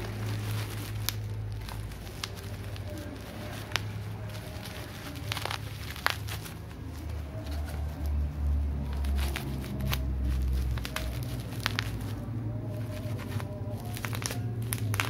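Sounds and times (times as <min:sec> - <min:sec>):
bubble wrap crackling: 0:00.0 - 0:15.0.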